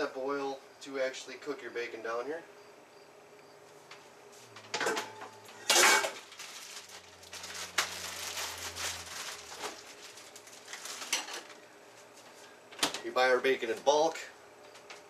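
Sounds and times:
cookware clattering: 4.8 - 6.2.

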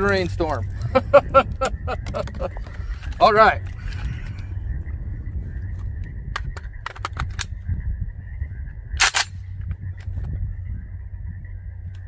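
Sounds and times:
rifle handling clicks: 6.4 - 7.5, 9.0 - 9.4.

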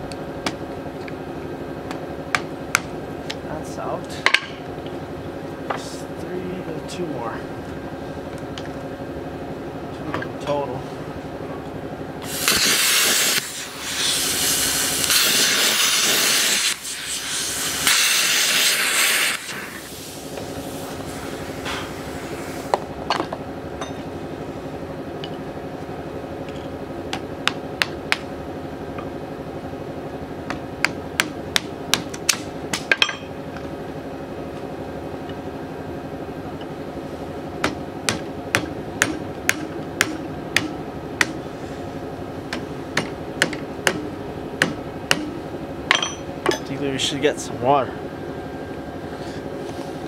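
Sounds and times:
steady hum: 0.0 - 50.0
hammer striking metal: 37.6 - 41.4, 42.5 - 46.7.

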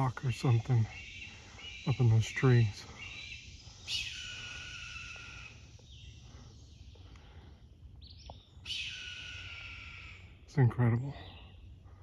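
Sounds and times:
insects humming: 0.0 - 12.0.

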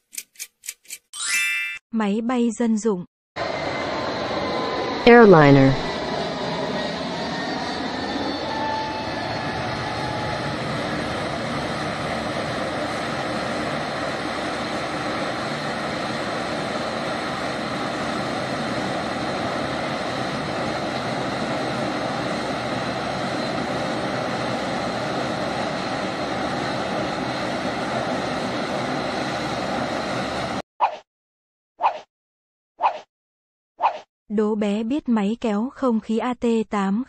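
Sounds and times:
jet airliner taking off: 3.4 - 30.6.

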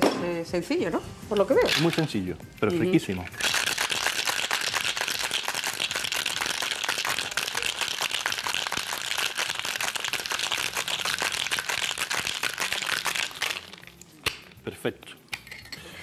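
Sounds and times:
ice rattling in cocktail shaker: 1.6 - 2.2, 3.0 - 14.1.

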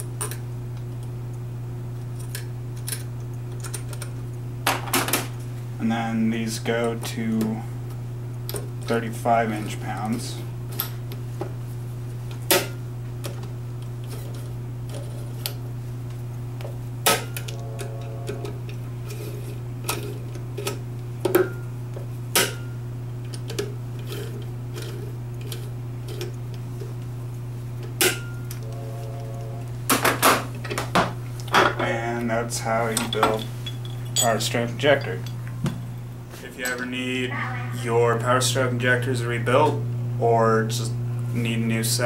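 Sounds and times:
steady low hum: 0.0 - 42.0
metal clinks: 33.0 - 35.4.

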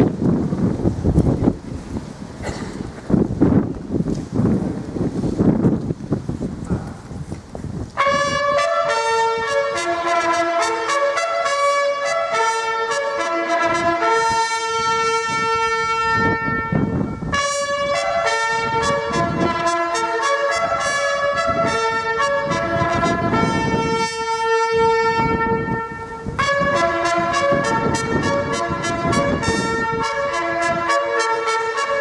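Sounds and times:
brass instruments playing slow melody: 8.0 - 32.0.

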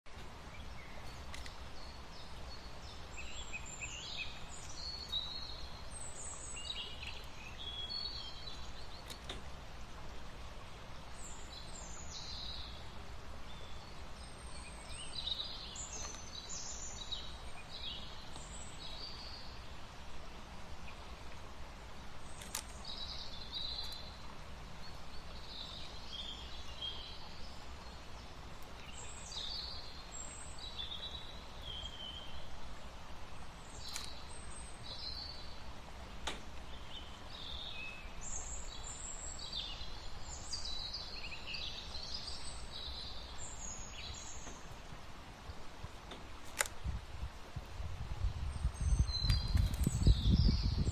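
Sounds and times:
small birds chirping: 0.1 - 50.9.

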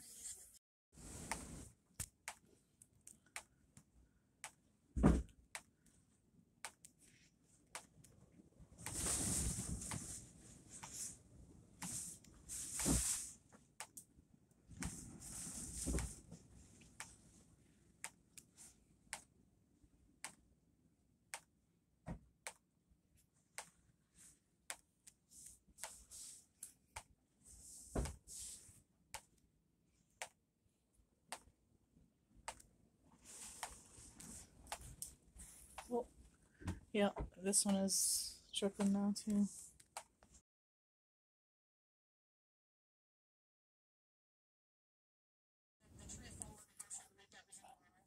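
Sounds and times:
dull thump: 5.0 - 5.3.

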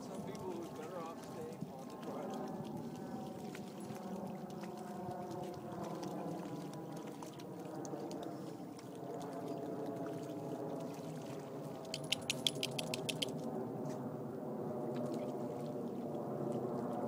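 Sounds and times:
dog splashing through water: 0.0 - 13.4.

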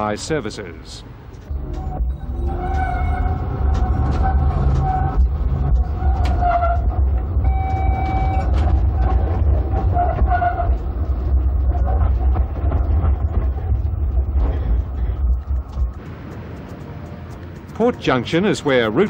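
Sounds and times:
tram rumbling on track: 0.0 - 19.0
high-pitched tones: 7.4 - 8.6.

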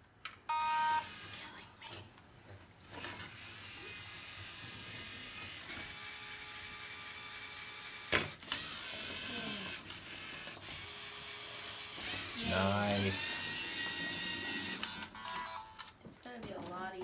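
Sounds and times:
small electric motors whining: 2.9 - 15.8.

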